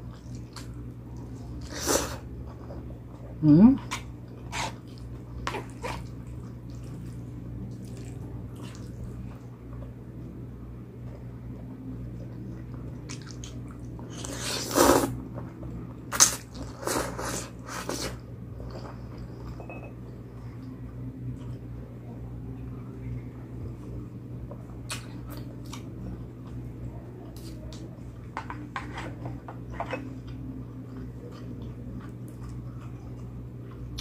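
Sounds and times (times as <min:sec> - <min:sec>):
wet chewing and smacking: 0:03.9 - 0:09.9, 0:12.1 - 0:14.0.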